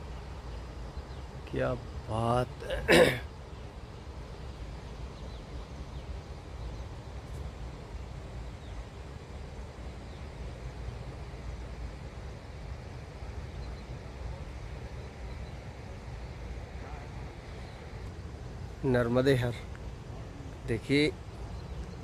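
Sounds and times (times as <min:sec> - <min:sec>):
faint bird chirps: 0:00.0 - 0:09.3, 0:13.2 - 0:18.1, 0:18.8 - 0:22.0.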